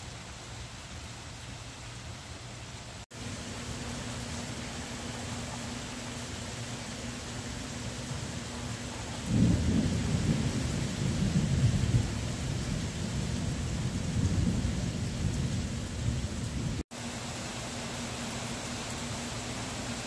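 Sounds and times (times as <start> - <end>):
rain on wet concrete: 0.0 - 20.0
thunder rumbling: 7.3 - 16.8.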